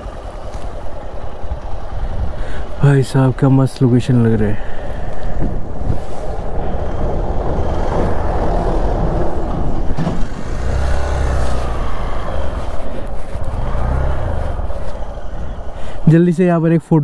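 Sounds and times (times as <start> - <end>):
low drone: 0.0 - 16.1
motorcycle riding: 0.0 - 16.5
wind rushing over microphone: 1.3 - 2.8, 4.4 - 16.1.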